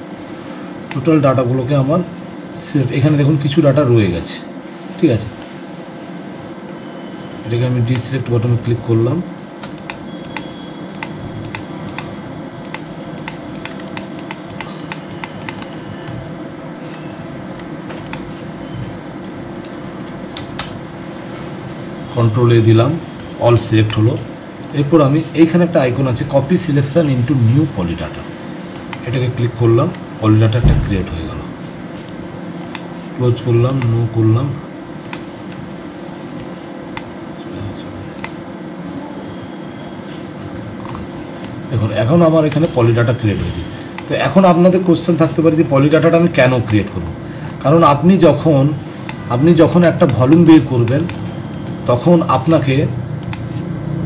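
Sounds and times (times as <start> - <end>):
steady low hum: 0.0 - 54.0
computer mouse clicking: 9.6 - 16.3, 17.6 - 18.3, 28.8 - 29.0, 32.6 - 32.9, 35.0 - 35.3, 38.2 - 38.4, 42.5 - 44.1, 49.8 - 51.8, 53.2 - 53.5.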